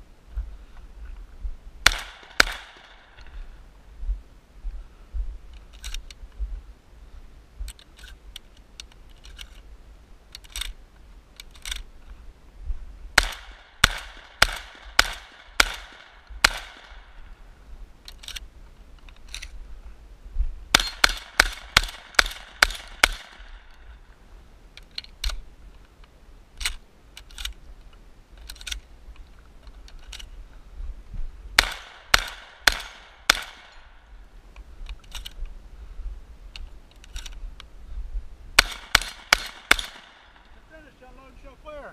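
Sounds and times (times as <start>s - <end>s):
shotgun shots: 1.8s - 3.1s, 13.2s - 17.2s, 20.7s - 23.6s, 31.6s - 33.9s, 38.6s - 40.4s.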